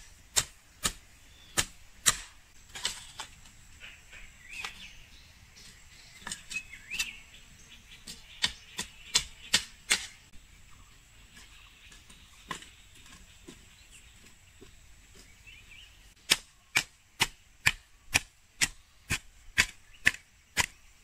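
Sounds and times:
hoe chopping into soil: 0.0 - 3.3, 8.0 - 10.2, 16.2 - 20.8
faint bird chirps: 2.9 - 9.7.

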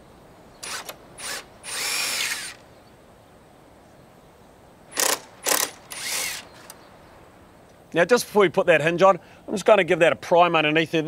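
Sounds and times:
cordless drill whining: 0.6 - 2.6, 5.0 - 6.8.

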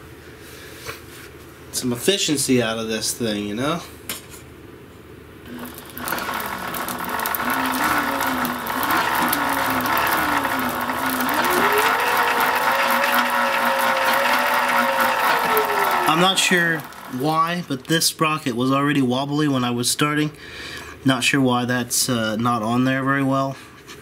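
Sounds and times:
electric motor whine: 5.5 - 18.0
whir of spinning chain: 5.5 - 18.2.

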